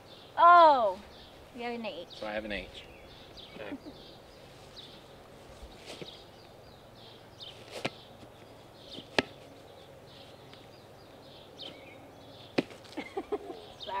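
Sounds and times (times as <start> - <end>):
soccer balls knocked by hand: 12.5 - 12.8.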